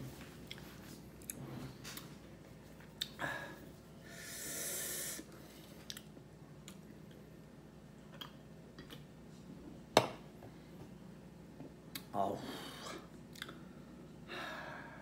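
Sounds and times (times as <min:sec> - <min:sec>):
hissing breath: 0:04.0 - 0:05.5.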